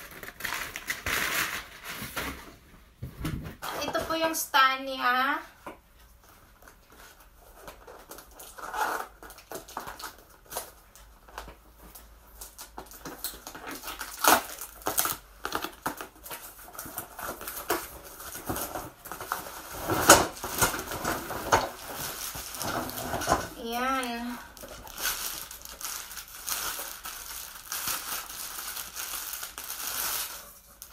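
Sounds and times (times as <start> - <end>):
cardboard box rustling and scraping: 18.3 - 23.5.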